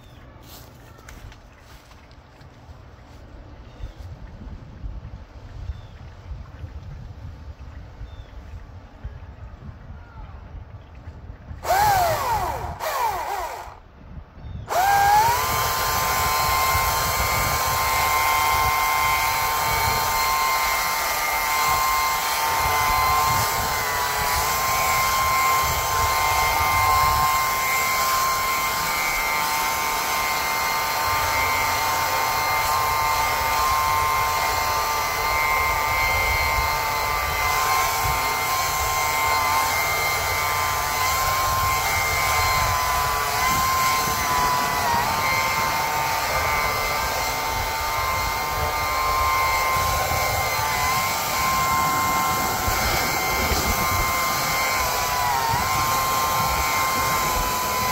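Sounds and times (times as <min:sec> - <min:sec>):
small motors whining: 0:11.6 - 0:57.9.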